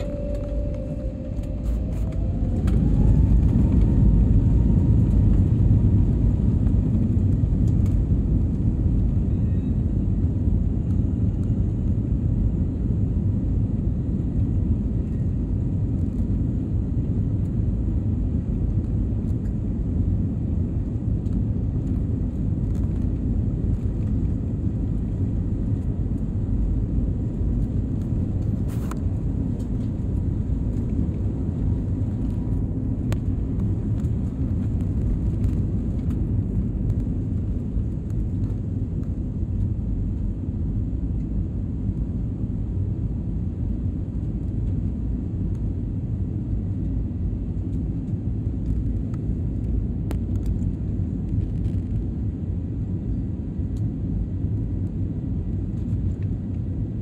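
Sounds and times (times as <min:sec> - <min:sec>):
jet engines spooling up: 0:00.0 - 0:06.4
loud aircraft engine rumble: 0:00.0 - 0:57.0.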